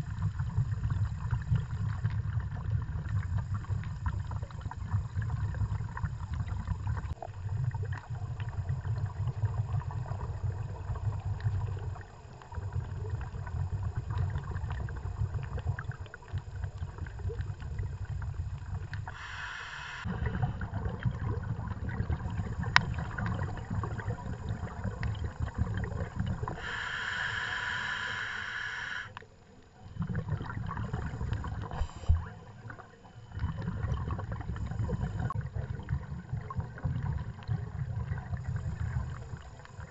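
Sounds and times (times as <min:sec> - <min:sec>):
underwater exhaled bubbles: 0:00.0 - 0:39.9
regulator inhale hiss: 0:19.0 - 0:20.5, 0:26.4 - 0:29.3, 0:31.4 - 0:32.4.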